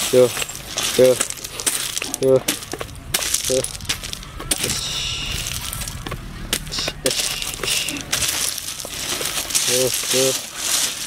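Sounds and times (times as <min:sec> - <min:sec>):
gravel crunching and clinking: 0:00.0 - 0:11.0
low voice-like sounds: 0:03.4 - 0:08.2.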